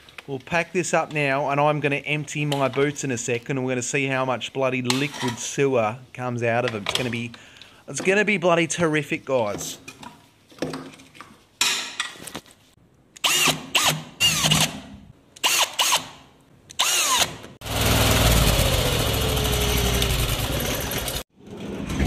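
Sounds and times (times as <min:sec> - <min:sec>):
drain jetter engine running: 0:17.6 - 0:21.2.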